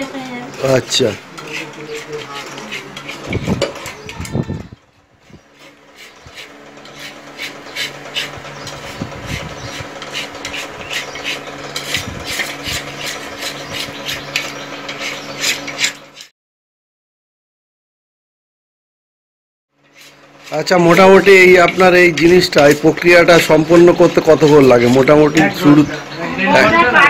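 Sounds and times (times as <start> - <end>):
steady low hum: 0.0 - 16.0
metal utensil scraping iron pan: 0.6 - 4.4, 5.5 - 16.3, 19.8 - 25.9.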